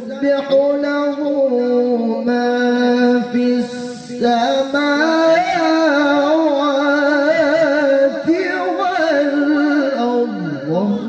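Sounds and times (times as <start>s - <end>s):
man reciting melodically into microphone: 0.0s - 11.0s.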